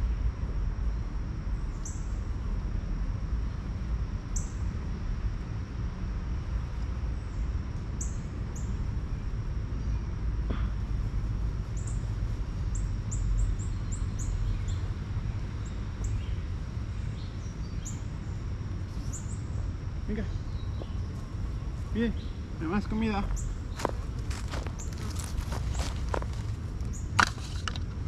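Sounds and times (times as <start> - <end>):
steady low rumble: 0.0 - 28.0
small birds chirping: 11.7 - 27.2.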